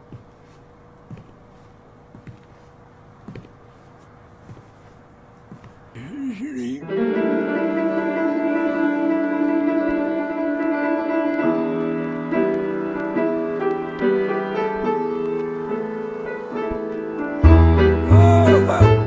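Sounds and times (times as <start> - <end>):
piano music: 6.8 - 19.0.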